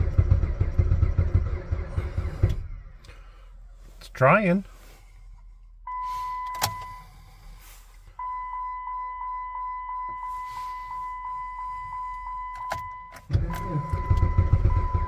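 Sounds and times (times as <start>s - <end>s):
car key warning chime: 5.9s - 7.2s, 8.2s - 15.0s.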